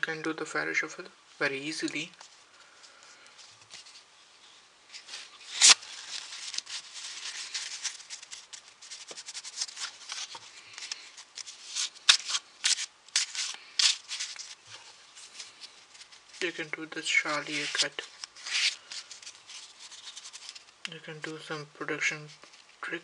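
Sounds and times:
playing cards rustling: 4.9s - 21.5s
cards snapping: 5.5s - 5.8s, 7.8s - 14.6s.

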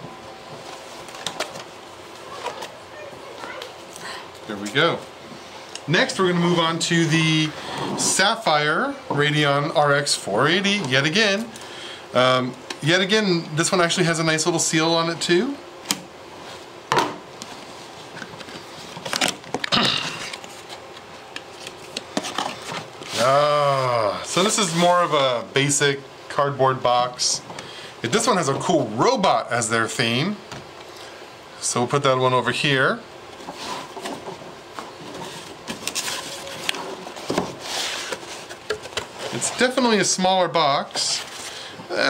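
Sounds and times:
cardboard scraping: 33.5s - 39.9s.

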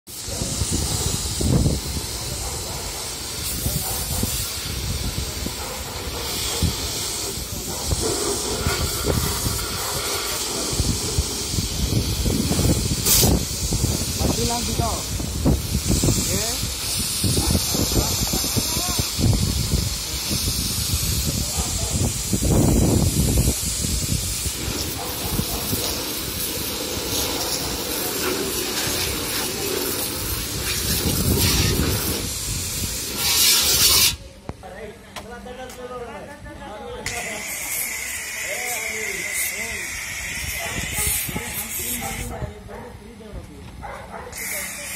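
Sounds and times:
pressure washer spraying water: 0.1s - 34.3s, 37.1s - 42.4s, 44.1s - 44.9s.

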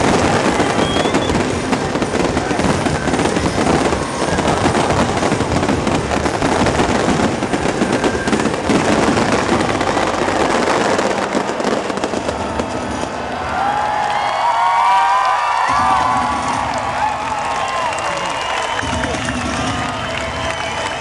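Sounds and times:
fireworks crackling and popping: 0.0s - 21.0s
low rumble: 18.7s - 20.9s.

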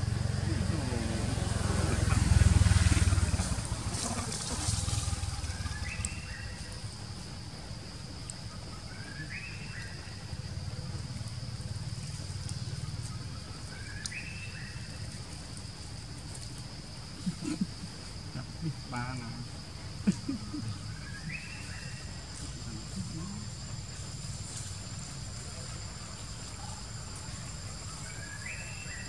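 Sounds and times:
high insect drone: 0.0s - 29.0s.

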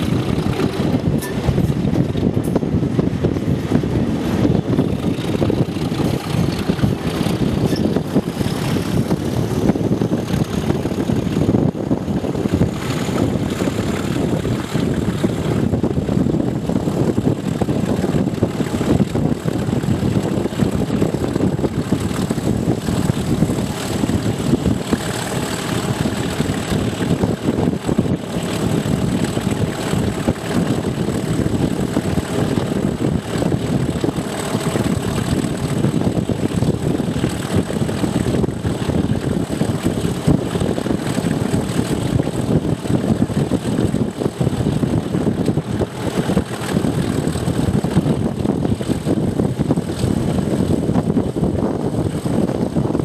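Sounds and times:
diesel locomotive engine running: 0.0s - 53.0s.

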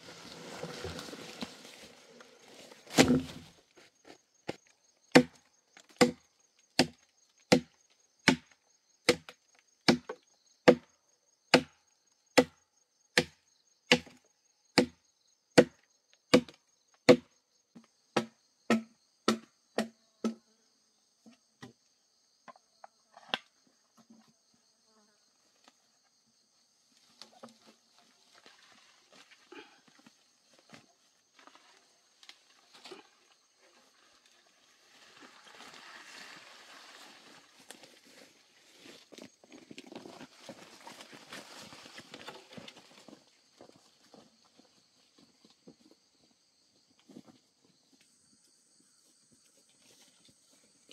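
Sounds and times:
wood being chopped: 2.9s - 3.5s, 5.1s - 5.4s, 6.0s - 6.2s, 6.8s - 10.9s, 11.5s - 11.8s, 12.4s - 12.6s, 13.2s - 14.2s, 14.8s - 15.0s, 16.3s - 17.3s, 18.2s - 20.4s.

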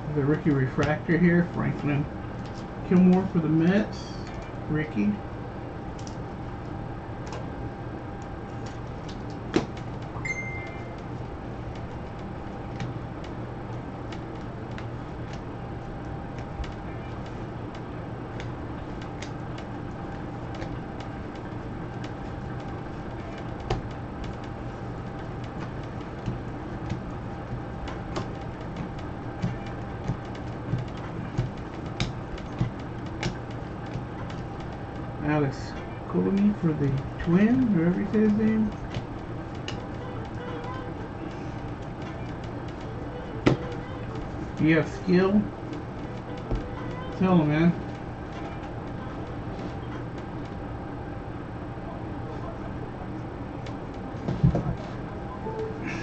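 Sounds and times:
low hum and hiss: 0.0s - 56.0s.

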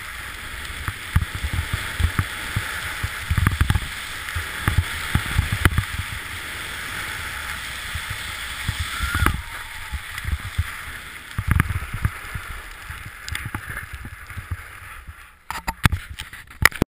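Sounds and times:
skis hissing over snow: 0.0s - 16.6s
wind buffeting microphone: 1.0s - 15.2s
sharp clicks and knocks: 15.5s - 16.8s.

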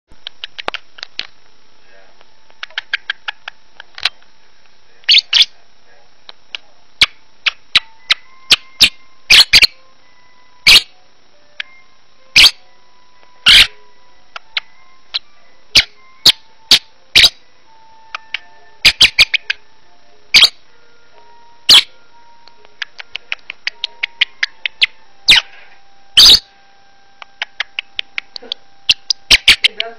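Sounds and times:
bird chirping: 0.2s - 1.4s, 2.6s - 4.3s, 5.0s - 5.6s, 7.0s - 29.9s
soft bird warbling: 5.1s - 5.5s, 10.6s - 10.9s, 13.4s - 13.8s, 18.1s - 19.6s, 20.3s - 20.6s, 22.8s - 25.5s, 26.2s - 26.5s, 27.2s - 29.9s.

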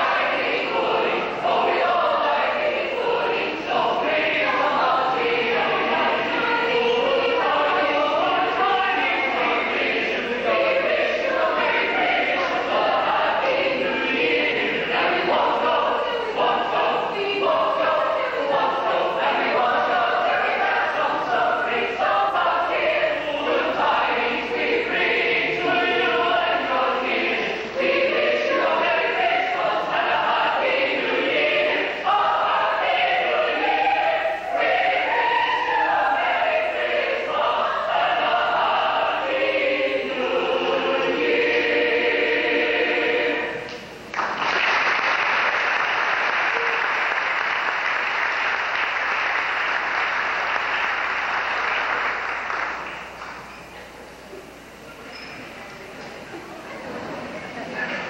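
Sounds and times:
choir singing: 0.0s - 44.4s
audience applause: 44.1s - 53.4s.

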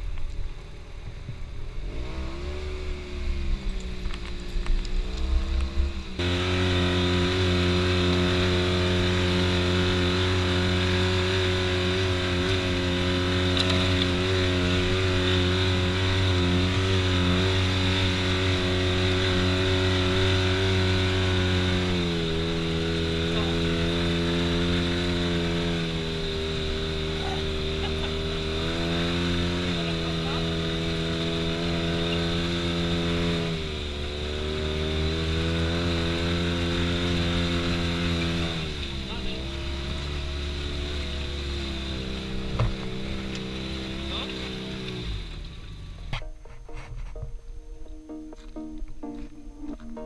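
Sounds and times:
utility vehicle engine running: 0.0s - 50.0s.

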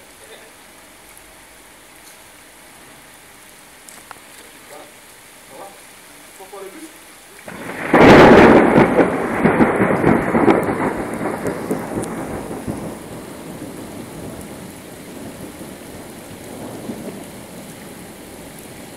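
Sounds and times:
steady rain hissing: 0.0s - 18.9s
thunderclap rumbling: 7.4s - 18.9s.

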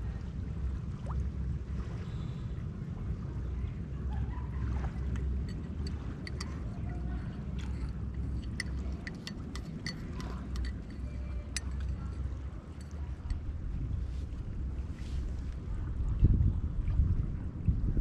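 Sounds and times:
seawater lapping among rocks: 0.0s - 18.0s
wind rumble on microphone: 0.0s - 18.0s
water ticks and drips: 4.8s - 14.5s.

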